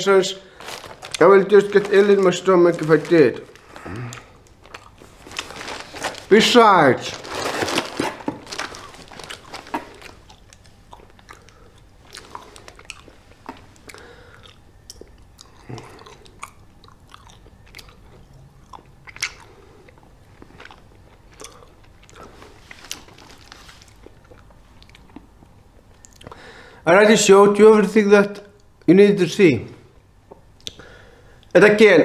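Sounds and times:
person chewing candy: 0.6 - 6.4, 7.1 - 26.4.

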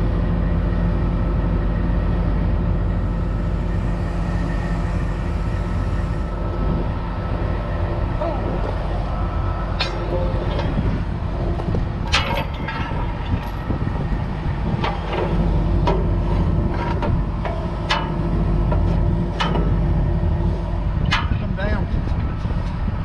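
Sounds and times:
truck engine running: 0.0 - 23.0
metal clanks and clicks: 9.8 - 13.8, 14.8 - 19.9, 21.0 - 22.8.

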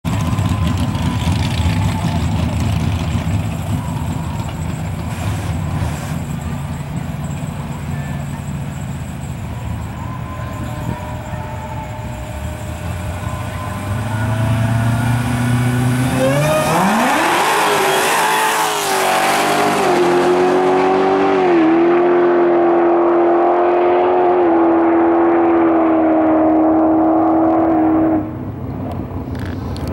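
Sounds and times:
car engine rumbling and revving: 0.0 - 29.9.

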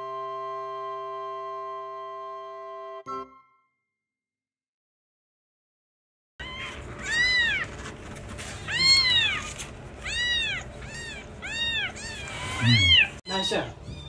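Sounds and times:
kittens mewing: 6.4 - 14.0.

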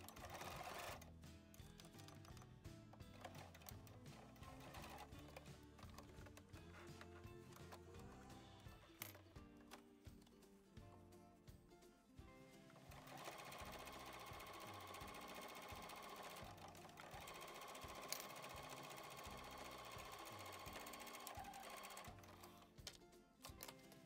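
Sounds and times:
sewing machine stitching: 0.0 - 2.4, 3.0 - 9.2, 12.8 - 22.7
background music with steady beat: 0.0 - 24.0.

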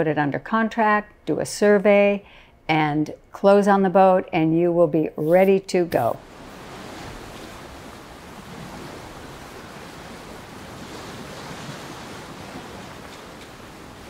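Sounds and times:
wind: 5.3 - 14.0
ocean waves: 5.9 - 14.0.

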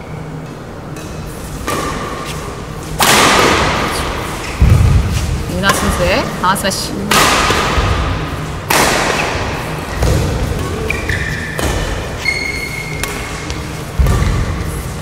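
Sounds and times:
rackets hitting shuttlecock: 0.9 - 6.1, 7.0 - 14.9
sneaker squeaks on court: 10.7 - 13.6.

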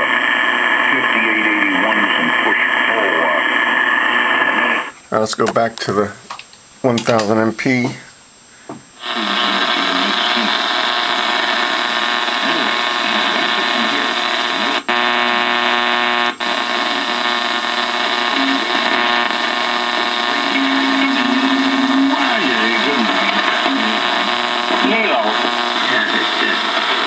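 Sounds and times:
faint radio voice: 0.0 - 4.9, 9.0 - 15.6, 16.4 - 27.0
radio buzz of power-line noise: 0.0 - 27.0.

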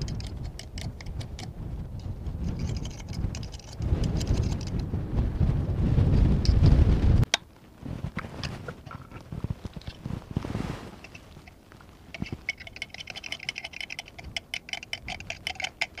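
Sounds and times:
metal pick scraping oyster shell: 0.0 - 1.5, 2.4 - 4.8, 11.0 - 16.0.

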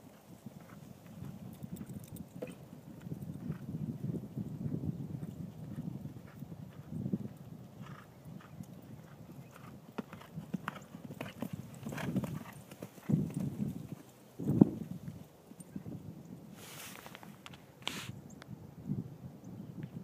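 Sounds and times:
horse hoofbeats cantering: 0.0 - 3.8, 4.4 - 15.0.

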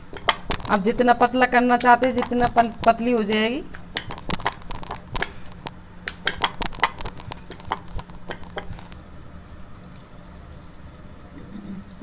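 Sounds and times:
faint steady hum: 0.0 - 12.0
hands tapping dough on board: 2.1 - 8.8.

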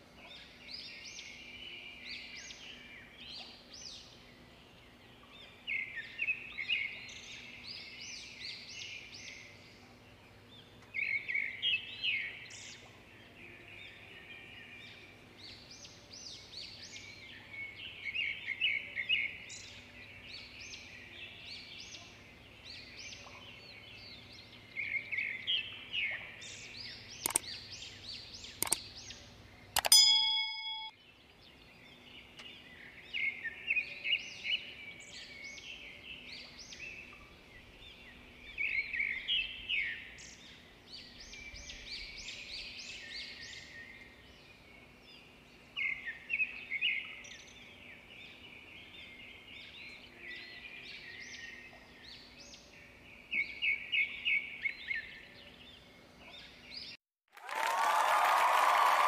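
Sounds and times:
birds chirping: 15.9 - 30.9.

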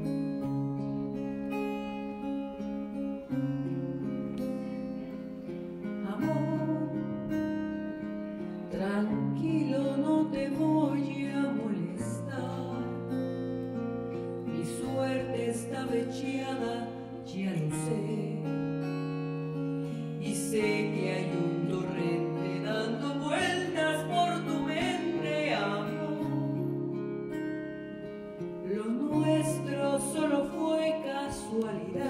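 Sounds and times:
acoustic guitar ballad: 0.0 - 32.0
woman singing: 5.8 - 13.6, 14.2 - 27.2, 28.5 - 32.0.

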